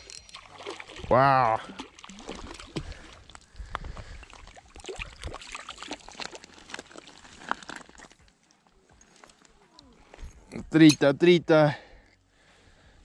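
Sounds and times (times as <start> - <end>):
water splashing and dripping: 0.0 - 8.3.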